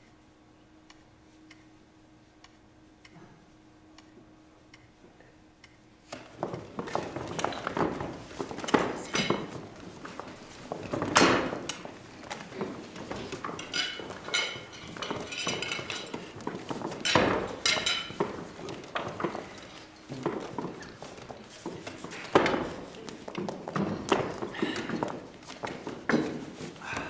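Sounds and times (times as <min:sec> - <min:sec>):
knocks and clatter on a table: 0:06.1 - 0:26.8.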